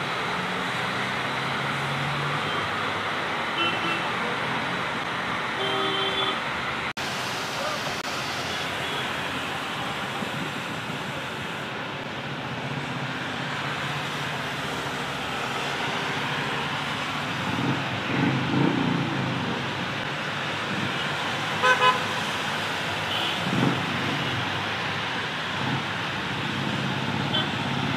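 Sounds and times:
tyres hissing on wet road: 0.0 - 27.9
vehicles passing: 0.0 - 27.9
rain: 6.4 - 27.9
vehicle horn toots: 21.6 - 22.1.

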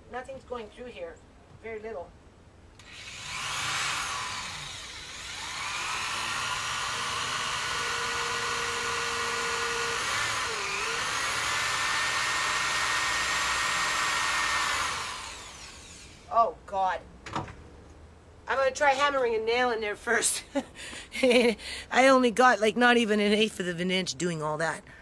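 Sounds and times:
electric drill whining in wood: 2.8 - 16.3.

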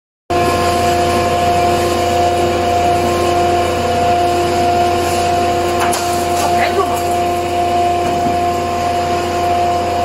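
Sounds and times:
machine motor humming: 0.3 - 10.0.

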